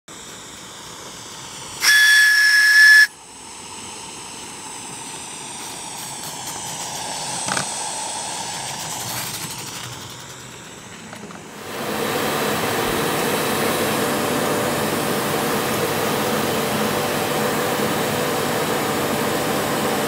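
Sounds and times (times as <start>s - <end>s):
steam hissing: 0.1s - 20.0s
steam whistle blast: 1.8s - 3.3s.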